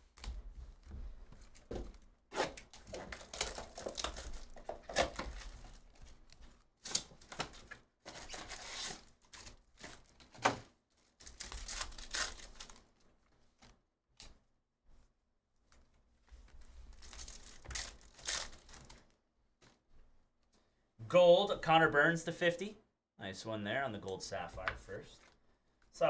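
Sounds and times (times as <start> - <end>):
cardboard tearing: 2.3 - 6.0, 6.8 - 10.3, 11.2 - 12.8, 16.9 - 19.0
plastic wrap and foil crinkling: 2.7 - 13.0, 16.5 - 19.8.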